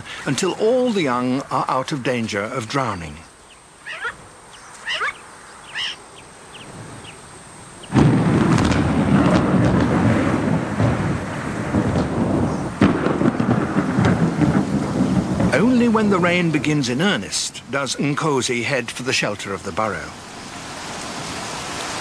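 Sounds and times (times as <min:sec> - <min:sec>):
thunder rumble: 0:07.8 - 0:20.2
thunder clap: 0:07.9 - 0:18.0.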